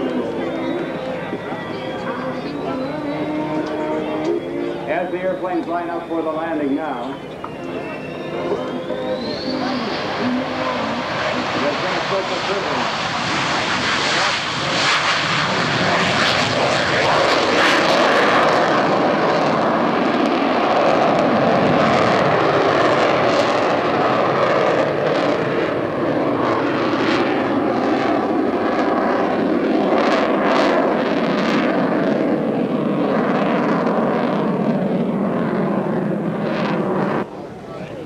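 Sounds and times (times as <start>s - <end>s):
aircraft engines flying low: 0.0s - 38.0s.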